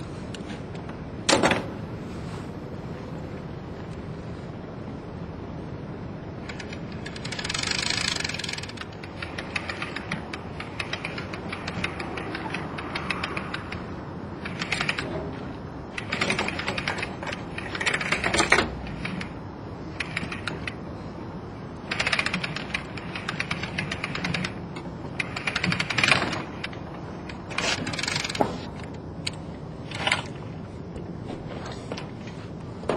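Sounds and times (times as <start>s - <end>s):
rope device fast mechanical clicking: 6.4s - 20.8s, 21.8s - 30.4s.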